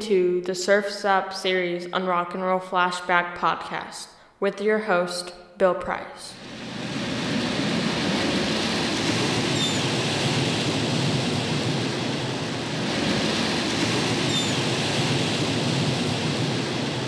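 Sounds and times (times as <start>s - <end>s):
ocean waves breaking: 6.4s - 17.0s.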